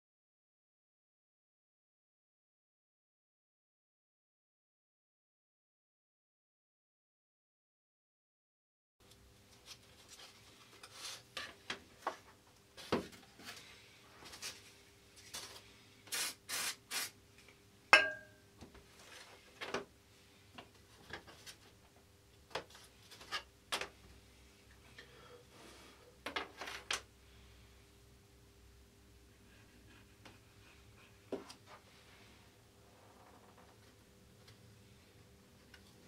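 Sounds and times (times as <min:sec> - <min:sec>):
sharp ringing knock: 0:18.0 - 0:18.4.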